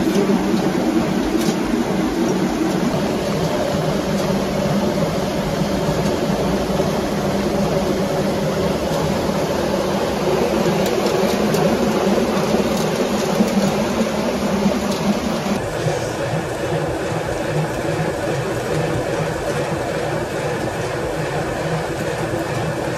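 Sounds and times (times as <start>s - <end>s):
millstone grinding rumble: 0.1s - 15.7s.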